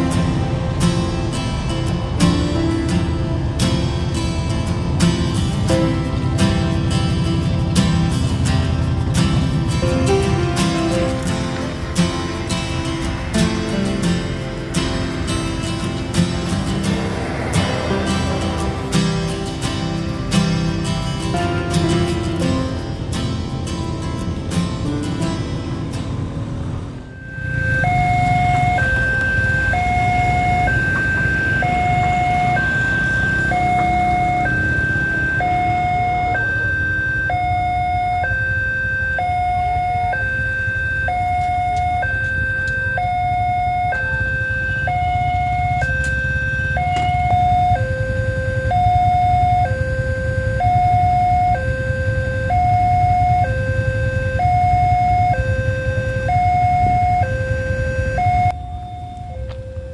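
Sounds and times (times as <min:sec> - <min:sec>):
low rumble: 0:15.6 - 0:21.0
level crossing warning alarm: 0:27.1 - 0:59.9.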